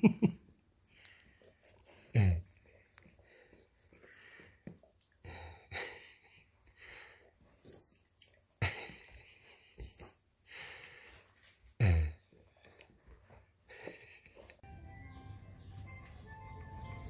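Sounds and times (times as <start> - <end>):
kittens chirping mews: 7.6 - 8.5, 9.7 - 10.3.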